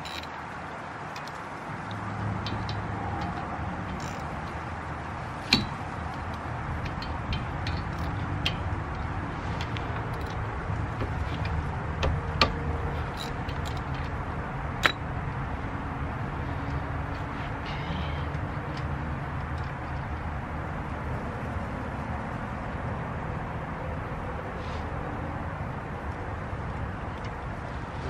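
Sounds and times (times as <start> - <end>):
metal tool clinking on caliper: 0.0 - 0.4, 1.1 - 4.6, 5.5 - 11.6, 12.4 - 14.2, 14.8 - 15.1.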